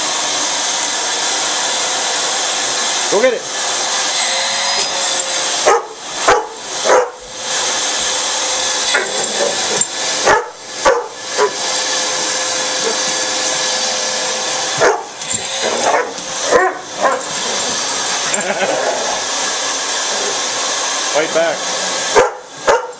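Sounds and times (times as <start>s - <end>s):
vacuum cleaner motor hum: 0.0s - 22.9s
dog barking: 5.6s - 7.2s, 10.2s - 11.6s, 14.8s - 17.3s, 22.1s - 22.9s.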